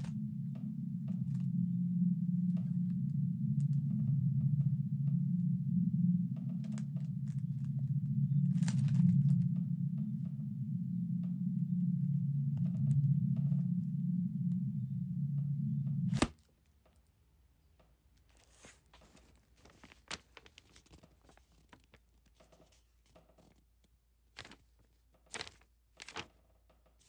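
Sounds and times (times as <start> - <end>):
steady low drone: 0.0 - 16.3
paper and photographs rustling: 18.2 - 26.4.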